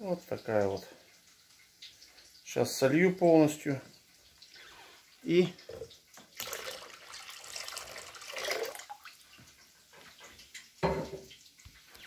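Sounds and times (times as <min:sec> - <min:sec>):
water splashing into plastic bucket: 0:05.5 - 0:09.2.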